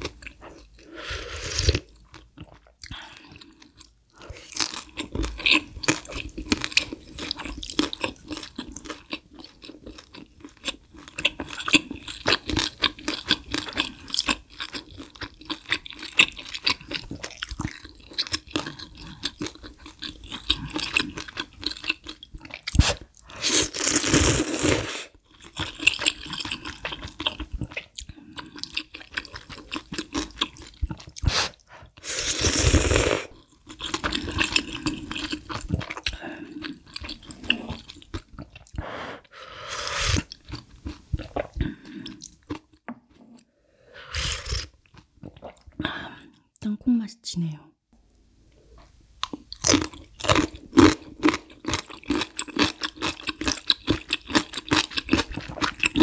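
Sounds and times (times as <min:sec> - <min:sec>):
chewing and wet mouth sounds: 0:00.0 - 0:24.6, 0:25.2 - 0:39.3, 0:39.9 - 0:43.5, 0:44.1 - 0:46.6, 0:48.8 - 0:56.0
loud slurps of noodles: 0:22.8 - 0:25.1, 0:31.2 - 0:33.3, 0:38.8 - 0:40.3, 0:43.9 - 0:44.7.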